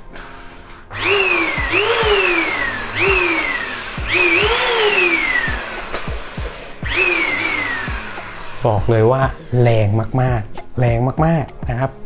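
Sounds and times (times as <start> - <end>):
vacuum cleaner motor whine: 0.9 - 9.4.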